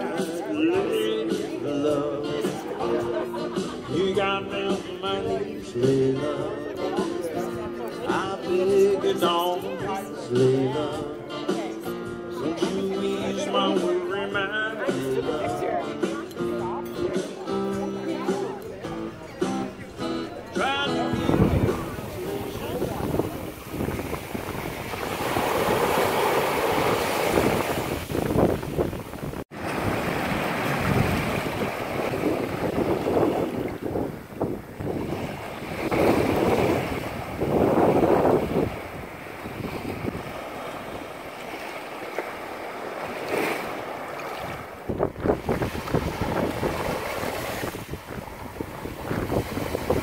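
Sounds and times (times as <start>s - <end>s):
wind buffeting microphone: 21.1s - 41.2s, 44.4s - 50.0s
small surf washing onto beach: 21.2s - 50.0s.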